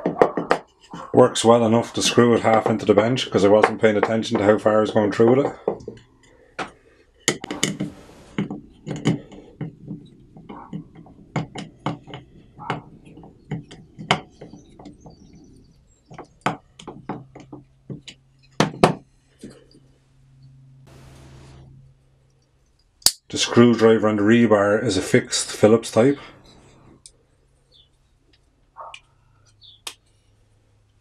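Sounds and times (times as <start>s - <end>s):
steady low hum: 7.4s - 9.3s, 20.0s - 22.3s, 24.9s - 27.1s.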